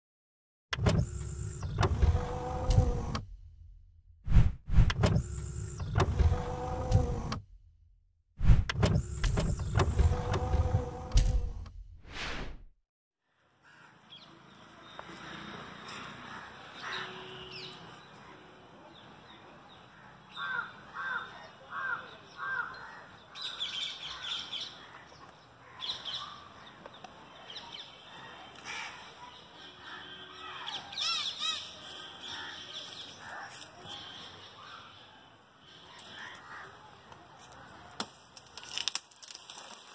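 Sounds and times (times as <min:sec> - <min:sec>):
outdoor background noise: 0:13.2 - 0:39.9.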